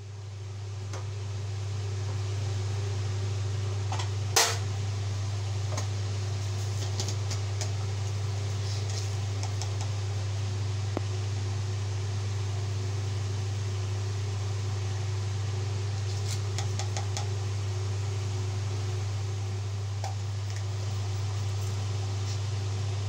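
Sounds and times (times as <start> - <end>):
steady low hum: 0.0 - 23.0
food crackling in frying pan: 5.6 - 11.2.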